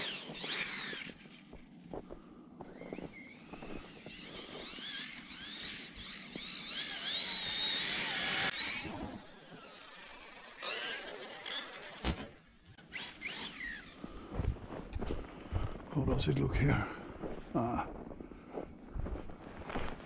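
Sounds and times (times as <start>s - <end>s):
electric motor whining: 0.0s - 1.9s, 2.6s - 14.2s.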